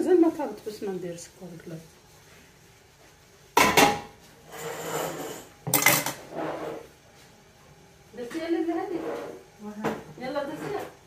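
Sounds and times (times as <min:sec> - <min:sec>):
metal kitchenware clanking: 0:03.6 - 0:06.7.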